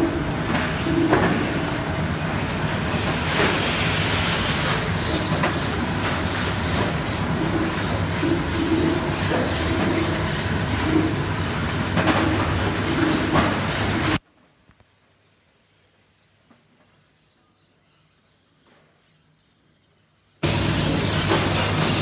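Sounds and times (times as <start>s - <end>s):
packaging machine rattle and hum: 0.0s - 14.2s, 20.4s - 22.0s.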